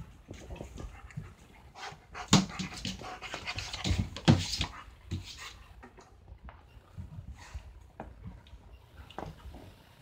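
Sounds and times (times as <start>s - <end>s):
dog panting and huffing: 0.0s - 5.8s.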